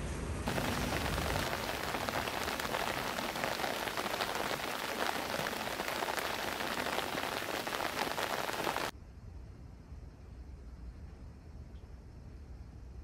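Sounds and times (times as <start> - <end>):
heavy rain falling: 0.5 - 8.9.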